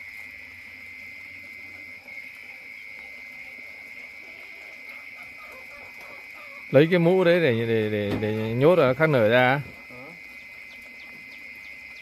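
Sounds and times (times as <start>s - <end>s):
shrill chorus of calling animals: 0.0s - 7.3s.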